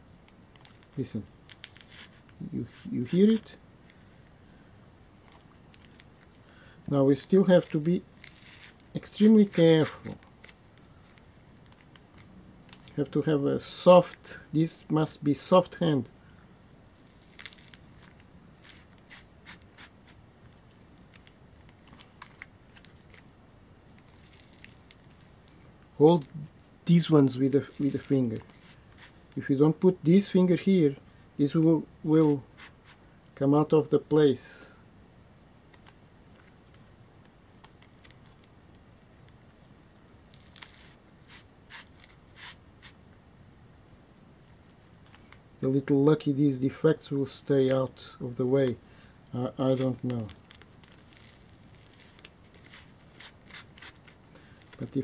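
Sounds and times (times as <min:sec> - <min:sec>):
tape crackling off rope: 0:00.5 - 0:03.5, 0:07.2 - 0:13.0, 0:17.0 - 0:23.3, 0:49.6 - 0:55.0.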